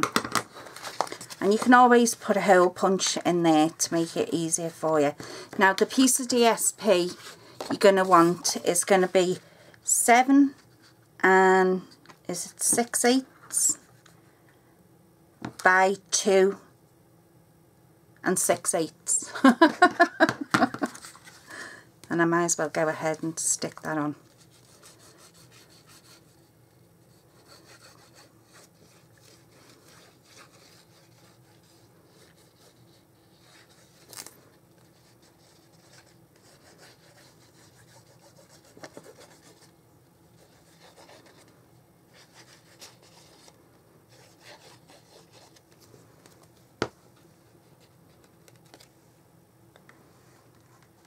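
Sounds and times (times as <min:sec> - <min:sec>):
paper rubbing and rustling: 0:24.2 - 0:46.5.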